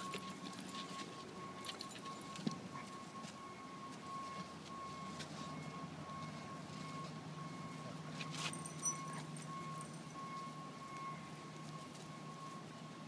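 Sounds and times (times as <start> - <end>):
dogs scuffing on dirt: 0.0 - 9.4
steady high-pitched tone: 0.0 - 13.0.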